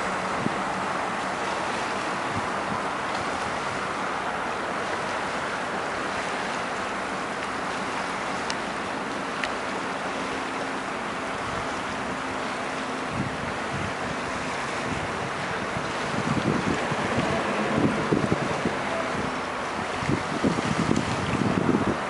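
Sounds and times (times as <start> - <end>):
wind on microphone: 0.0 - 6.4, 13.0 - 22.0
distant locomotive hum: 0.0 - 20.0.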